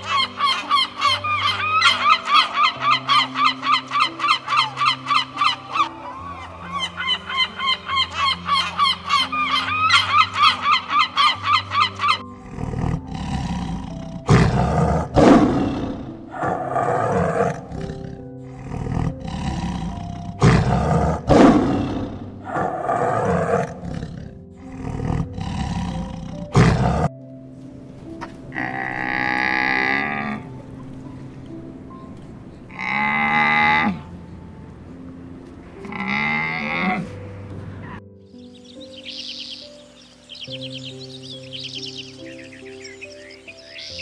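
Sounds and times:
animal bellow: 0.0s - 27.1s, 28.5s - 30.5s, 32.7s - 34.1s, 35.8s - 38.0s
background music: 0.0s - 44.0s
tiger roaring and growling: 11.7s - 27.2s, 28.5s - 30.5s, 32.7s - 34.1s, 35.8s - 38.0s.

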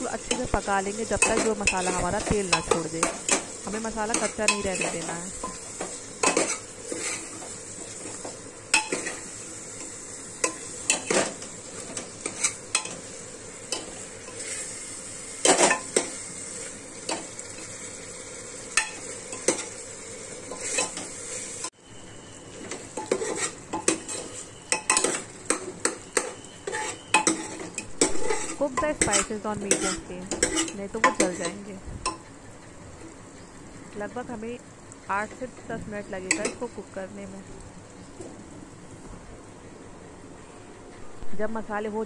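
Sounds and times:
masala sizzling in oil: 0.0s - 42.0s
metal spoon scraping a pot: 23.0s - 25.3s, 26.2s - 31.6s.

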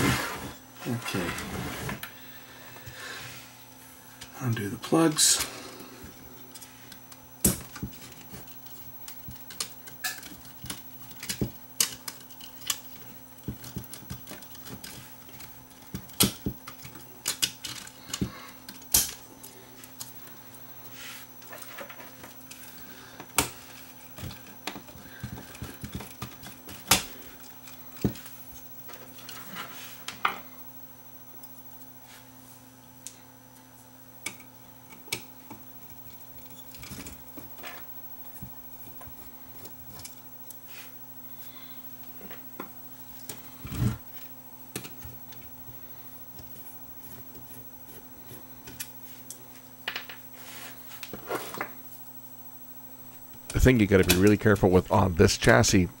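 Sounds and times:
steady low hum: 0.0s - 56.0s.

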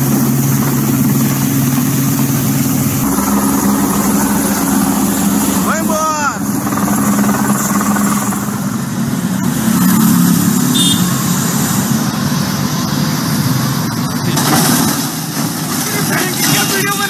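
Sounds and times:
helicopter engine and rotor: 0.0s - 9.8s
road traffic: 0.0s - 14.4s
heavy truck engine: 0.0s - 15.8s.

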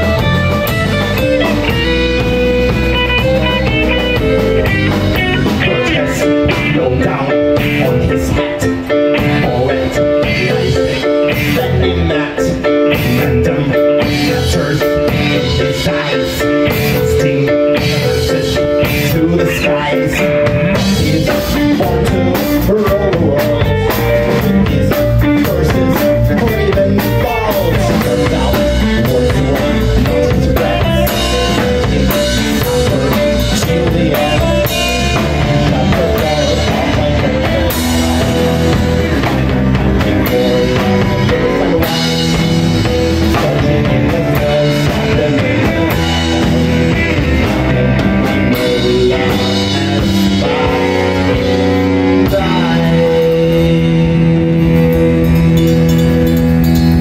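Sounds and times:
bass guitar: 0.0s - 57.0s
drum kit: 0.0s - 57.0s
electric guitar: 0.0s - 57.0s
keyboards: 0.0s - 57.0s.

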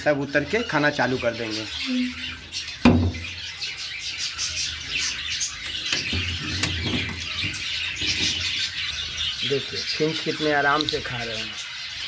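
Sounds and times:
finches chirping and twittering: 0.0s - 12.0s
sharp knock: 2.8s - 3.2s.

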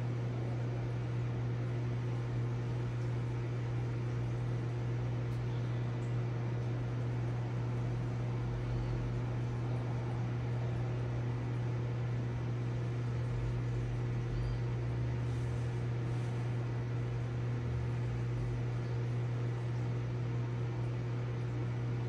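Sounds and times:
water pump electric hum: 0.0s - 22.0s.

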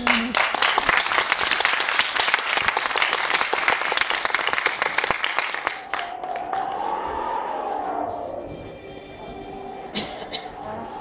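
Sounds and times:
audience applauding: 0.0s - 7.4s
held tone rising slightly: 5.7s - 11.0s.

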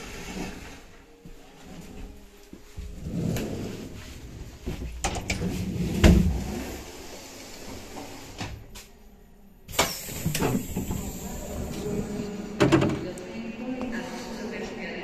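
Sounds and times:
train doors and handles clunking: 2.8s - 6.9s, 9.6s - 13.2s.

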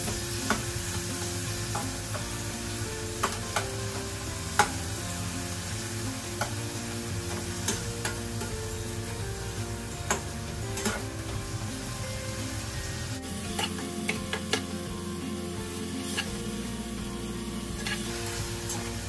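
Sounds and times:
vegetables sizzling in oil: 0.0s - 19.0s
spatula clicking against pan: 4.6s - 4.8s.

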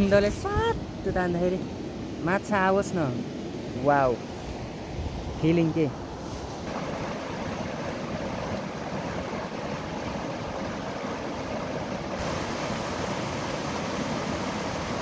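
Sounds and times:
river rushing over rocks: 6.6s - 15.0s.

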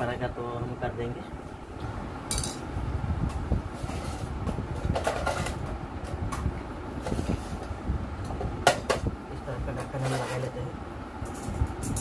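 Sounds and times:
steady low rumble: 0.0s - 12.0s
metal scraping on concrete floor: 9.9s - 10.6s.

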